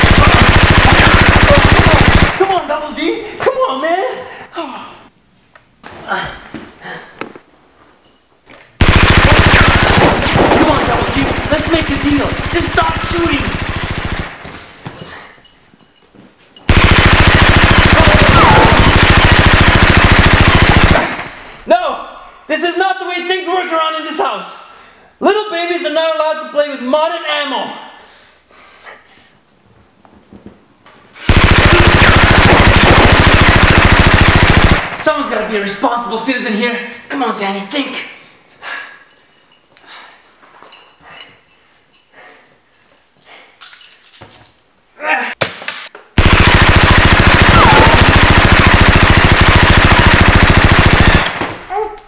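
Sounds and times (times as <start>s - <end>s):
toy blaster rapid fire rattle: 0.0s - 2.4s, 8.8s - 14.4s, 16.7s - 21.3s, 31.3s - 35.0s, 46.2s - 51.6s.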